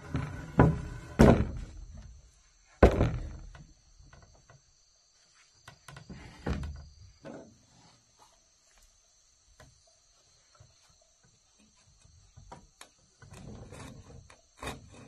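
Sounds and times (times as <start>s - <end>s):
wooden beam thudding on floor: 0.6s - 2.0s, 2.8s - 3.6s.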